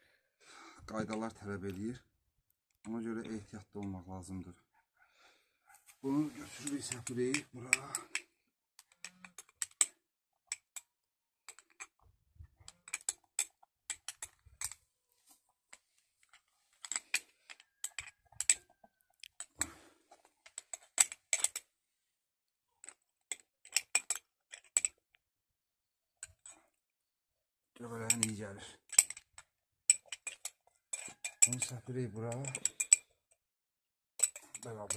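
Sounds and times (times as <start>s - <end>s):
spoon scraping glass jar: 30.0s - 33.1s.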